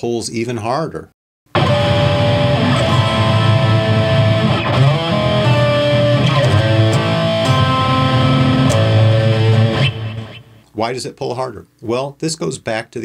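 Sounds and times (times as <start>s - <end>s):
distorted electric guitar chords: 1.5s - 10.7s.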